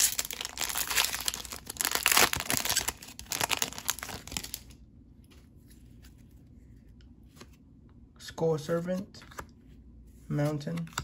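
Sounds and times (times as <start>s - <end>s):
foil wrapper tearing and crinkling: 0.0s - 4.7s.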